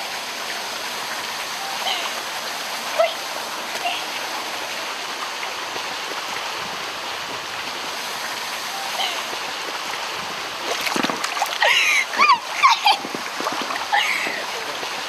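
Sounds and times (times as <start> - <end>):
water splashing in a pool: 0.0 - 15.0.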